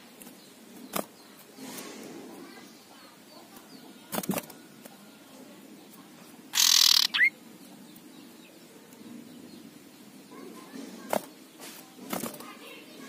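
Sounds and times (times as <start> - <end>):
wing flutter: 4.1 - 4.7, 6.5 - 7.3
bird harsh rasping call: 6.5 - 7.4.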